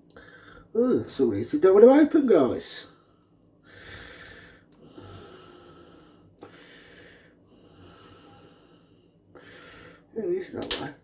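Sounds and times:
person breathing: 0.0 - 0.7, 2.8 - 10.1.

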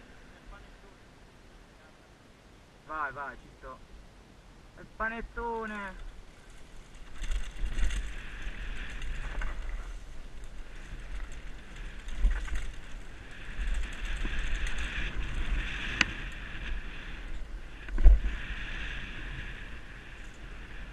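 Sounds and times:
bike rattling over rough ground: 5.7 - 20.9
wind buffeting microphone: 5.8 - 20.9.

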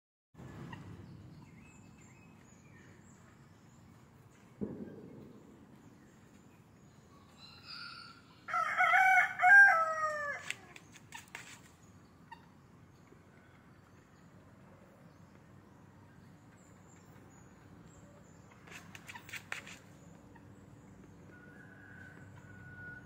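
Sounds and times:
rooster crowing: 7.6 - 10.5, 21.3 - 23.0.

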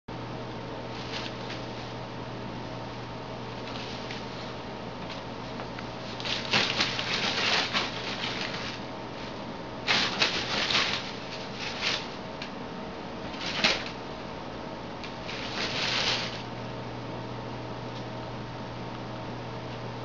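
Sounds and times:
room hum: 0.1 - 20.0
cats scuffling and swatting: 0.9 - 2.0, 3.5 - 12.5, 13.3 - 14.0, 15.0 - 16.5.

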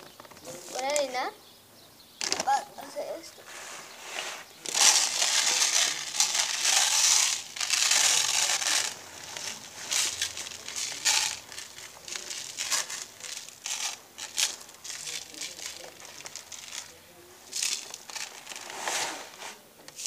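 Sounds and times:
cat litter pouring: 4.1 - 19.6
plastic bag crinkling: 4.6 - 19.4.

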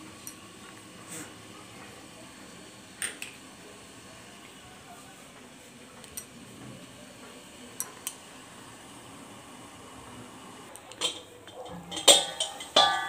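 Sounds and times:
metallic clinks of pan lid: 10.9 - 13.0.

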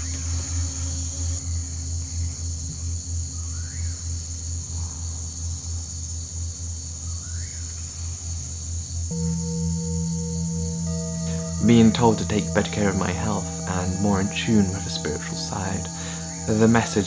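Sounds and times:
high chirring of insects: 9.1 - 17.0
low pulsing drone: 9.1 - 17.0.

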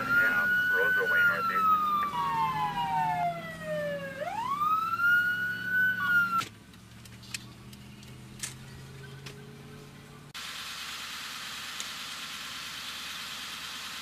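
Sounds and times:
emergency siren wailing: 0.0 - 6.4.

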